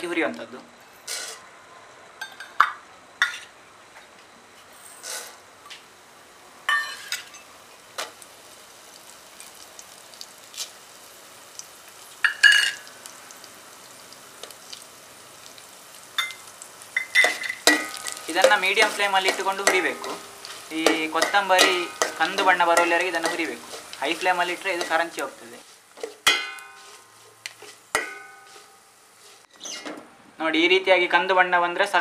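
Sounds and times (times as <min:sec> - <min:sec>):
spices sizzling in oil: 0:04.7 - 0:29.8
spoon clinking on steel pot: 0:12.2 - 0:12.9, 0:17.0 - 0:20.2.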